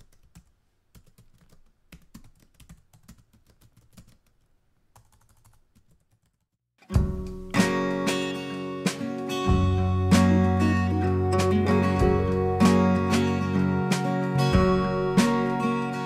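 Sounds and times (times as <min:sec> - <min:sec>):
loud music: 0:07.0 - 0:16.0.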